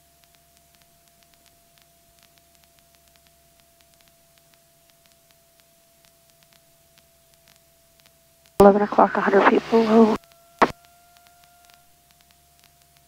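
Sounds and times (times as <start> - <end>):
radio line hiss: 8.6 - 10.7.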